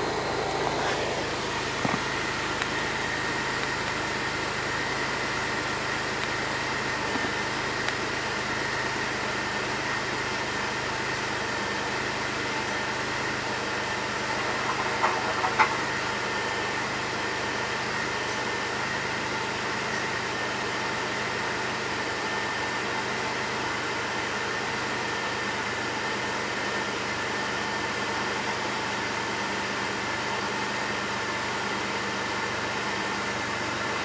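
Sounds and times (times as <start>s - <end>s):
steady high whine: 0.0s - 20.8s
car engine idling rough: 0.0s - 34.0s.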